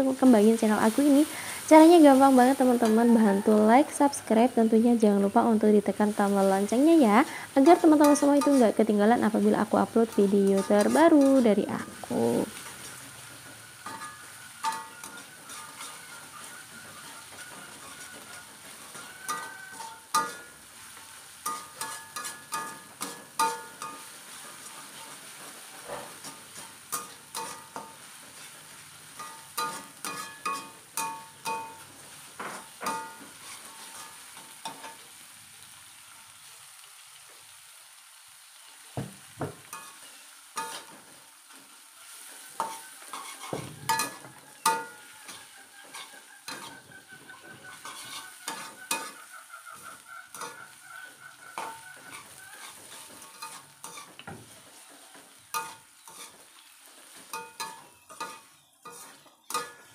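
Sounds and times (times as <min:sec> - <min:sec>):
food sizzling in oil: 0:00.0 - 0:59.9
spatula clanking against wok: 0:07.5 - 0:08.8, 0:10.0 - 0:11.7, 0:13.8 - 0:20.6, 0:21.4 - 0:25.2, 0:25.8 - 0:35.0, 0:40.6 - 0:41.0, 0:42.6 - 0:54.5, 0:55.1 - 0:56.4, 0:57.1 - 0:59.9.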